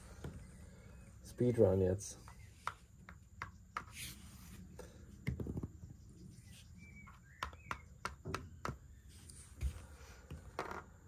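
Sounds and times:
game pieces tapping on board: 2.2s - 4.0s, 7.0s - 8.9s.

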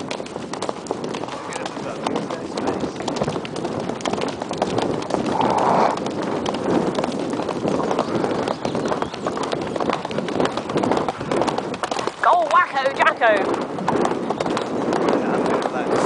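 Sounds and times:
hoofbeats on gravel: 0.0s - 16.0s.

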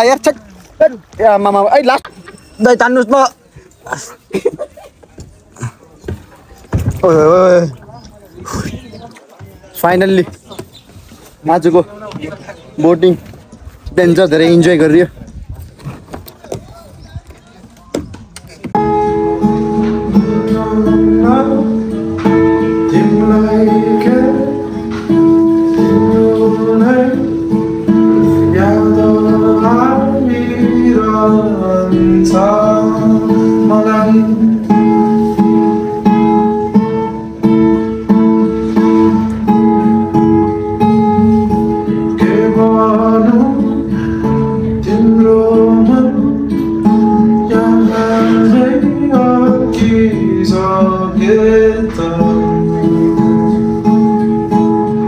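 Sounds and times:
acoustic guitar: 15.3s - 55.0s
man singing: 18.8s - 36.4s, 41.5s - 55.0s.

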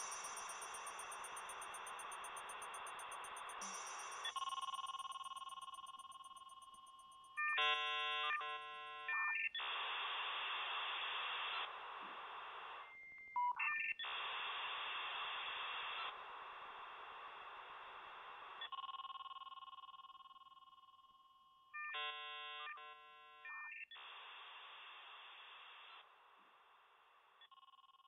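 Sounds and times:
phone line hiss: 0.0s - 6.5s.

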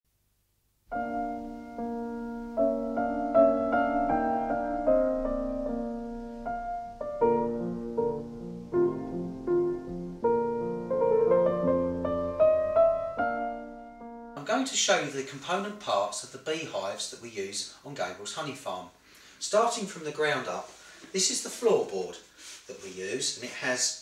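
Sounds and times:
gentle piano melody: 0.9s - 14.4s.

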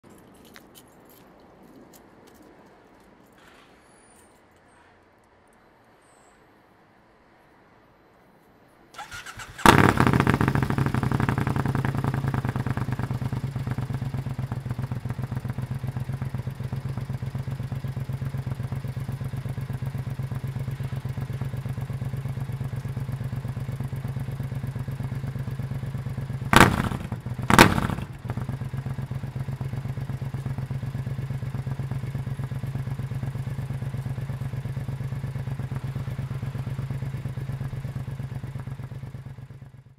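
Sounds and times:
engine revving bursts: 9.0s - 13.4s, 26.5s - 28.5s
motorcycle engine cranking: 9.0s - 13.6s
loud motorcycle engine idling: 9.2s - 39.9s.

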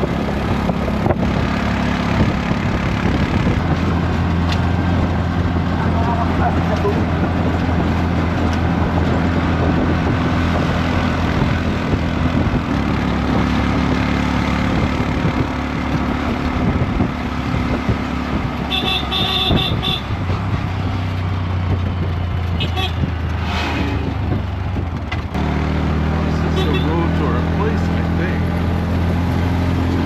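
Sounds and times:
motorcycle engine running: 0.0s - 23.4s
road and wind noise: 0.0s - 30.0s
horn toots: 18.7s - 20.2s, 22.6s - 24.1s, 26.4s - 27.1s.

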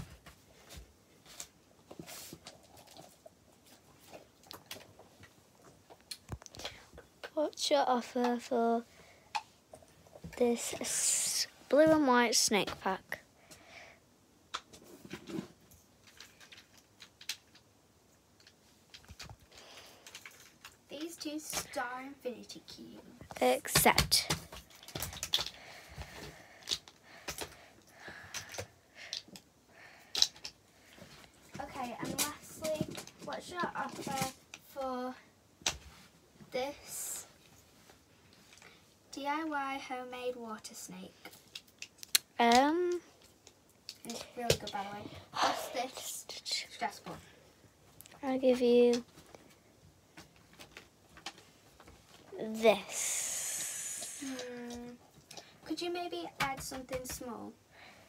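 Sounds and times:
soft taps and rustles: 30.9s - 34.8s.

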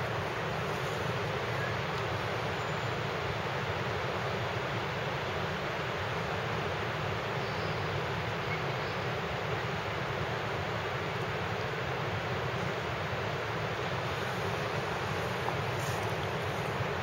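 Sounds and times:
steady rushing noise: 9.8s - 17.0s.

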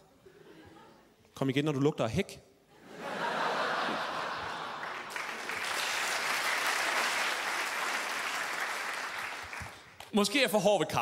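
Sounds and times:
audience applauding: 3.6s - 10.1s.

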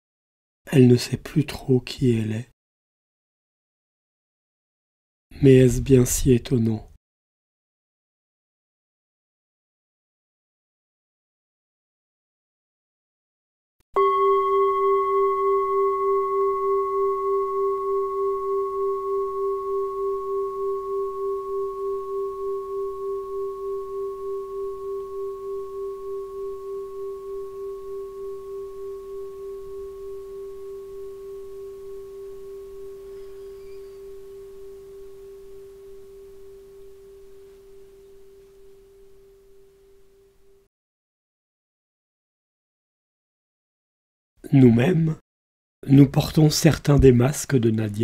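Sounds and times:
singing bowl ringing: 14.0s - 40.3s.

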